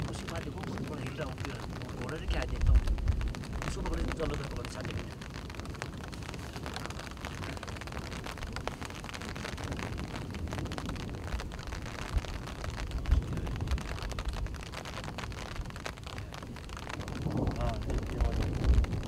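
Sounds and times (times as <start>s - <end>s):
faint crackles: 0.0s - 19.0s
low rumble: 0.0s - 19.0s
low thumps: 0.0s - 19.0s
steady hiss: 0.0s - 19.0s.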